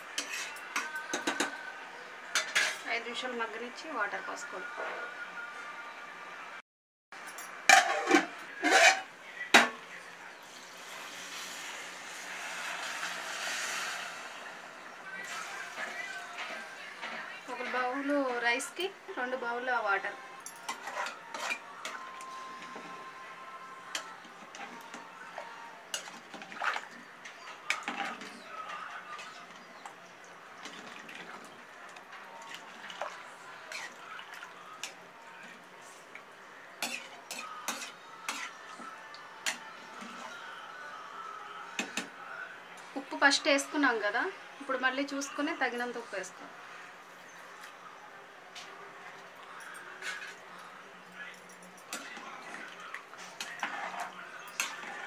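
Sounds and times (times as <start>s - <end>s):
metal spoon scraping a pot: 0.0s - 1.6s, 7.7s - 9.1s, 20.6s - 23.0s, 25.9s - 29.8s, 33.7s - 34.0s, 36.8s - 38.8s, 49.7s - 50.4s, 51.9s - 55.0s
water pouring into a pot: 10.5s - 16.2s, 26.0s - 27.0s, 30.6s - 31.6s.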